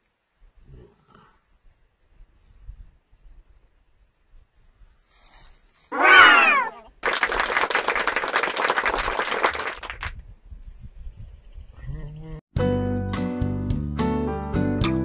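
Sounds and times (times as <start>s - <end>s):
loud wavering cry: 5.9s - 7.0s
applause: 6.0s - 10.2s.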